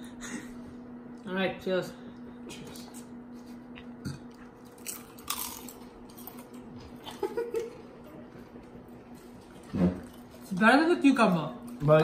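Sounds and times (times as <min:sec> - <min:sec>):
people crunching potato chips: 0:04.3 - 0:07.8.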